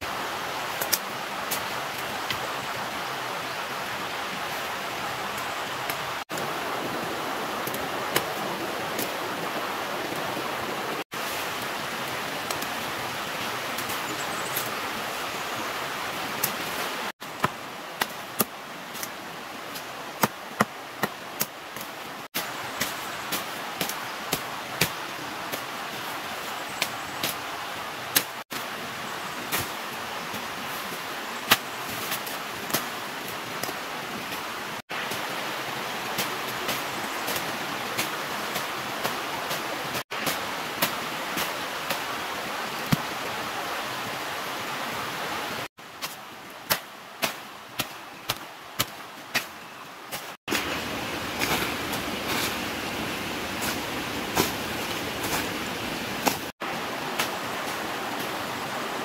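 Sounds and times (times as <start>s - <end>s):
bush knife chopping wood: 20.2s - 25.7s, 53.6s - 55.6s, 56.2s - 56.5s.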